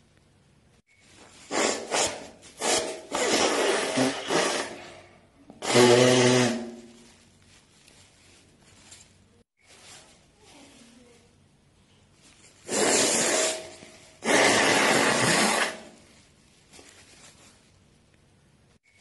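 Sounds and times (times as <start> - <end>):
person blowing nose: 1.3 - 4.9, 5.6 - 6.9, 12.6 - 16.0.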